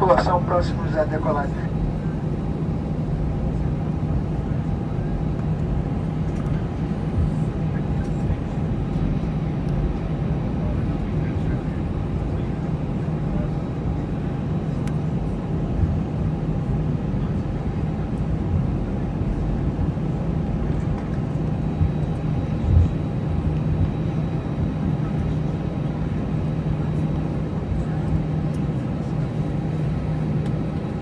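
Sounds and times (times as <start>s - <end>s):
jet engines low drone: 0.0s - 31.0s.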